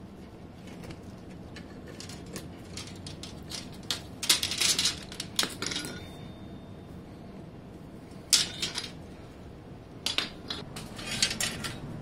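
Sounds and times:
metallic clicks and scrapes: 10.0s - 11.9s.

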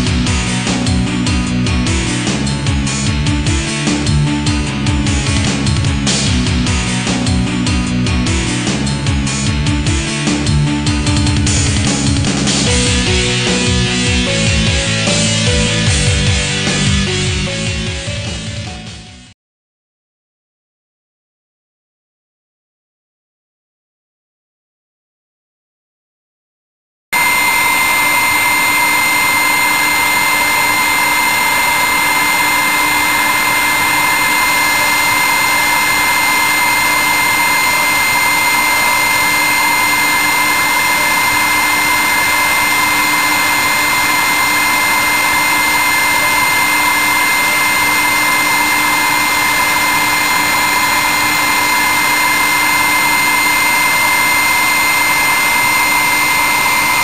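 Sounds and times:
milling spindle whining: 27.2s - 57.0s.

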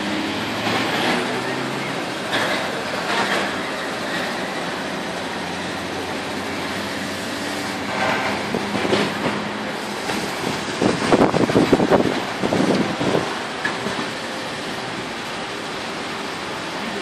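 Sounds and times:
rumble of motor traffic: 0.0s - 17.0s
wind buffeting microphone: 10.0s - 14.1s.

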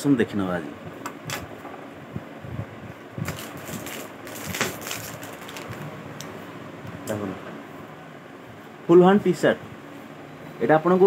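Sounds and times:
plastic packaging crinkling: 3.2s - 5.9s.

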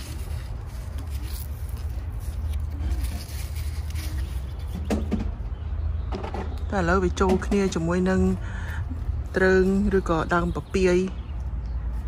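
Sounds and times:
leaves rustling against phone: 0.0s - 5.4s.

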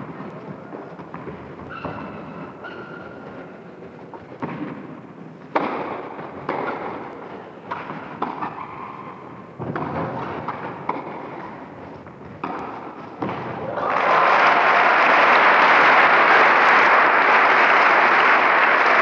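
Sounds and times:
tennis ball bouncing on court: 4.4s - 13.6s
tennis ball hit by rackets: 5.5s - 11.6s, 12.2s - 13.6s.

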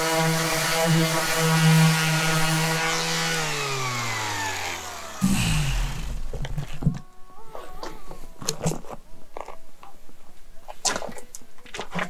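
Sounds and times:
orbital sander humming: 0.0s - 6.6s.

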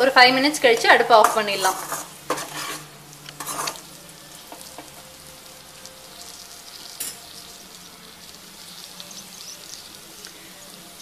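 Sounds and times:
potatoes sizzling in oil: 0.0s - 11.0s
spatula scraping: 0.7s - 3.9s.

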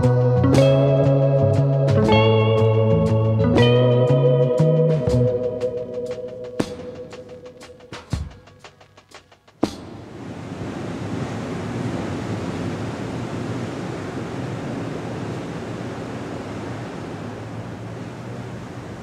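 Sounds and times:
steady rushing noise: 5.4s - 19.0s.

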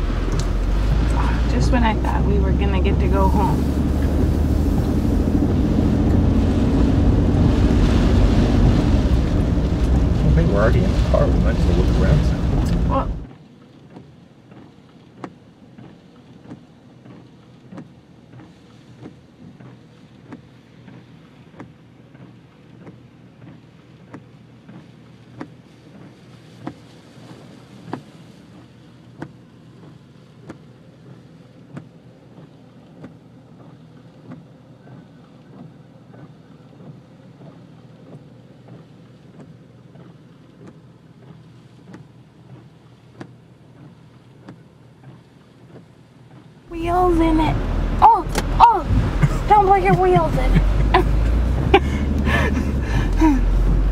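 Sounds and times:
idling engine hum: 0.0s - 13.3s, 42.4s - 53.9s
wiper thump: 0.0s - 13.3s
rain on glass: 0.0s - 34.7s, 35.3s - 53.9s
windshield wipers sweeping: 0.0s - 53.9s.

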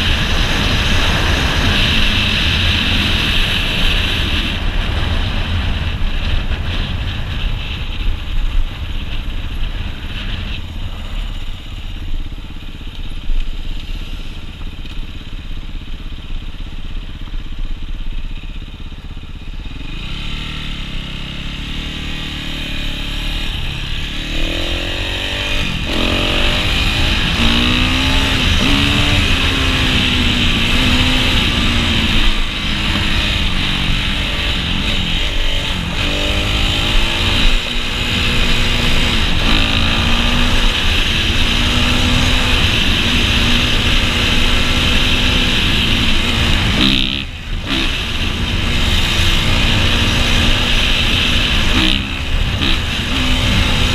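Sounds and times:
wind rushing over microphone: 0.0s - 13.8s, 19.6s - 53.9s
dirt bike engine accelerating: 0.0s - 53.9s.

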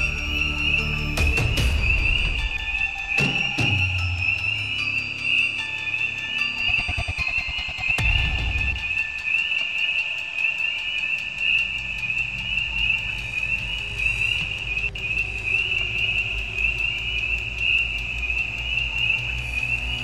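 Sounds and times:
low rumble: 11.4s - 20.0s.

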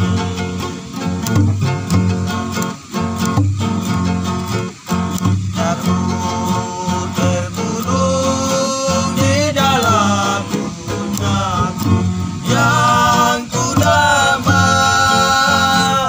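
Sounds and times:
men singing in harmony: 0.0s - 0.9s, 5.3s - 16.0s
acoustic guitars strumming: 0.0s - 16.0s
plucked upright bass: 0.0s - 16.0s
ukulele: 0.0s - 16.0s.

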